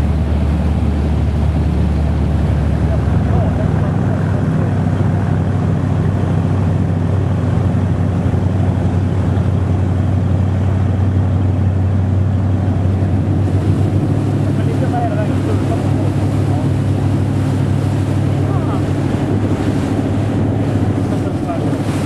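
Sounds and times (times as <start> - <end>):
powerboat engine running: 0.0 - 22.0
rushing water: 0.0 - 22.0
wind: 0.0 - 22.0.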